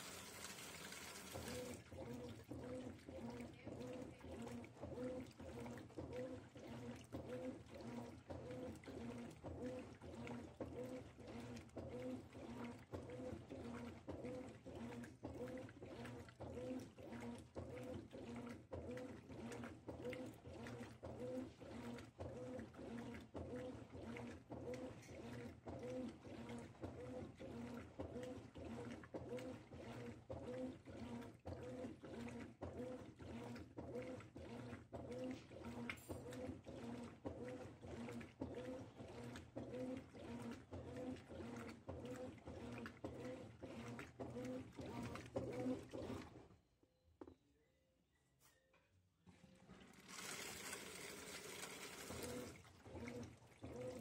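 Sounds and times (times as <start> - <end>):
washing machine motor hum: 0.0 - 46.6, 49.2 - 54.0
washing machine agitator pulses: 0.0 - 46.7, 49.2 - 54.0
water sloshing: 0.9 - 21.2, 51.6 - 54.0.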